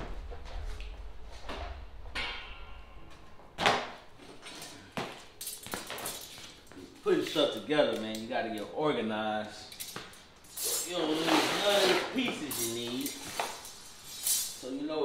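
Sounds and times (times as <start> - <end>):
low rumble: 0.0 - 4.2.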